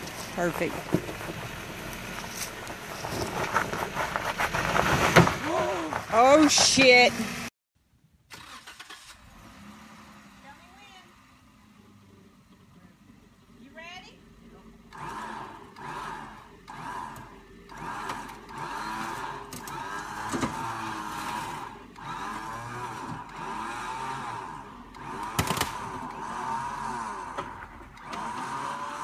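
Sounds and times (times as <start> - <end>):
electric winch whining: 14.7 - 29.0.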